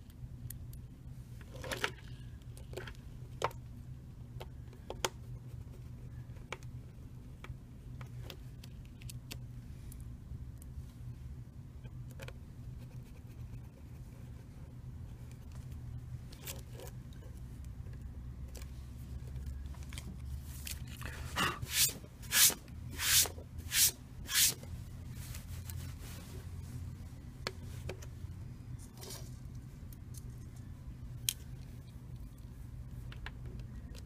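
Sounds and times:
steady low hum: 0.0 - 34.0
loud scraping swishes: 21.4 - 24.6.

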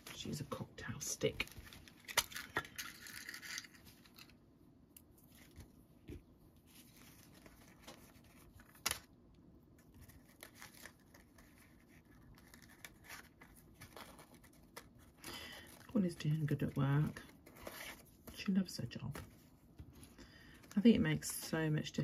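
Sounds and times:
paper rustling: 6.7 - 9.1, 9.8 - 18.5.

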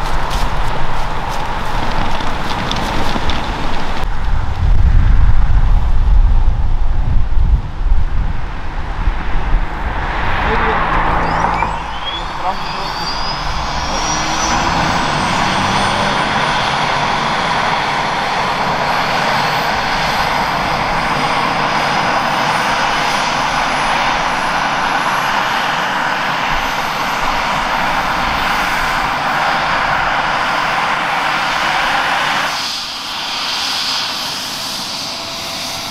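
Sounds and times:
high turbine whine: 0.0 - 35.9
helicopter turbine and rotor noise: 11.0 - 35.9.

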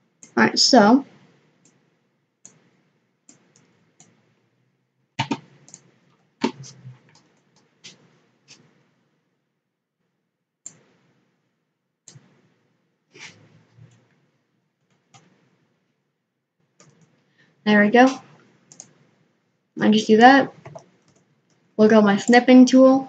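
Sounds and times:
computer mouse clicks: 2.4 - 2.7, 3.3 - 4.2, 5.2 - 8.7, 10.6 - 10.9, 12.1 - 12.3, 14.8 - 15.4, 16.8 - 17.2, 18.7 - 19.0, 20.6 - 21.6.

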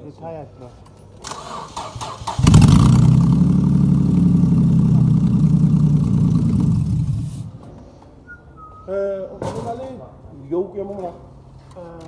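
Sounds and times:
car engine idling: 2.1 - 7.6.

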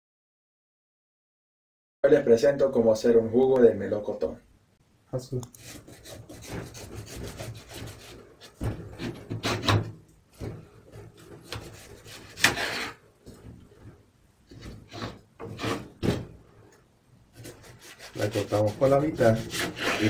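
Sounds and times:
knife sawing through melon rind: 5.6 - 8.2, 11.4 - 13.0, 17.4 - 20.0.

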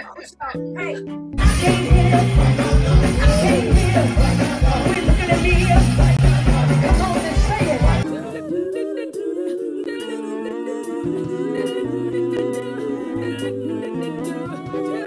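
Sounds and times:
music with a beat: 0.6 - 8.4
women singing in harmony: 1.4 - 15.0.

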